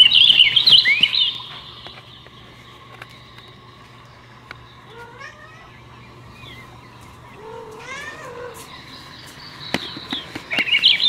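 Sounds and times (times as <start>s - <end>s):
high chirps: 0.0s - 11.0s
cat meowing: 4.9s - 5.8s, 7.4s - 8.7s.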